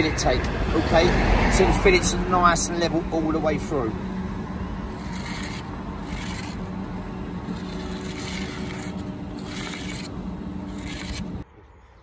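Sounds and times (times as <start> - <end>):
low engine hum: 0.0 - 11.8
pencil scraping on brick: 4.9 - 6.7, 7.5 - 11.4.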